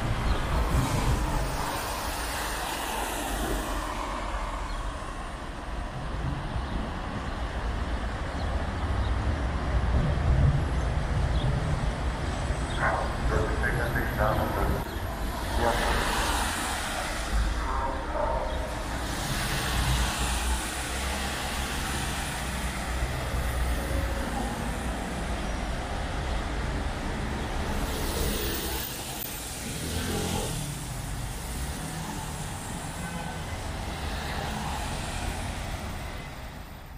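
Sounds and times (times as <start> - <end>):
tyres hissing on wet asphalt: 0.1 - 5.4, 14.8 - 17.7, 18.7 - 36.4.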